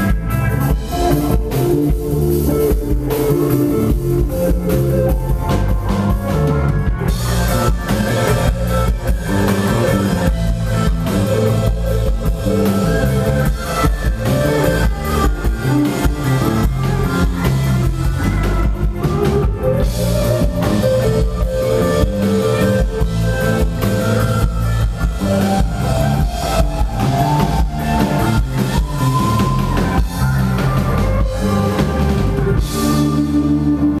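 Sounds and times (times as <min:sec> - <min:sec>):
live band playing: 0:00.0 - 0:34.0
sliding lead notes: 0:00.0 - 0:34.0
drum beat: 0:00.8 - 0:32.8.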